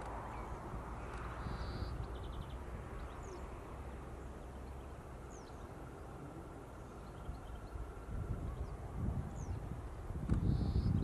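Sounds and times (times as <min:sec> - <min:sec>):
faint bird calls: 0:00.2 - 0:03.6.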